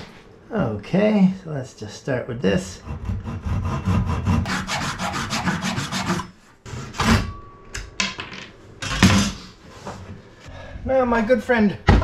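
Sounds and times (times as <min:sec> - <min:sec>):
hand saw cutting wood: 0:02.8 - 0:06.9.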